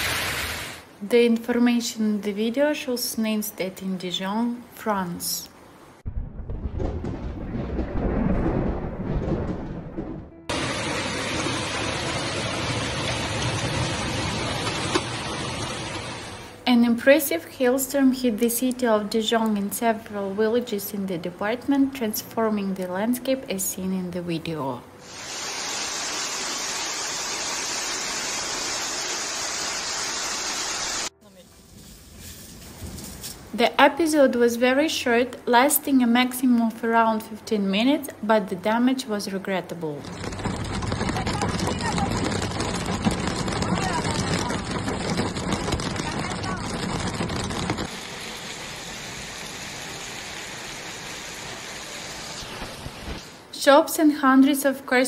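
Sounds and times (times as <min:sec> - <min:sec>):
hailstones pouring onto street and cars: 0:10.5 - 0:16.5, 0:40.0 - 0:52.3.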